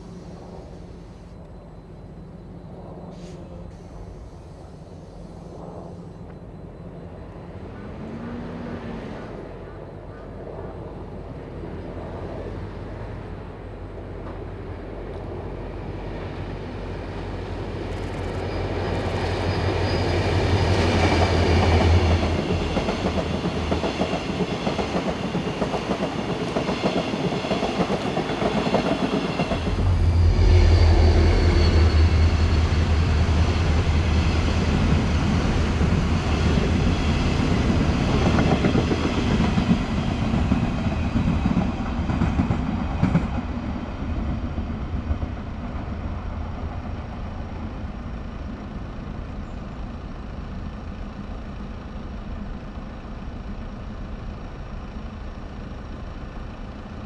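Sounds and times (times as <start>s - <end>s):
locomotive engine low hum: 0.0s - 57.0s
train wheels clattering on rails: 17.6s - 47.5s.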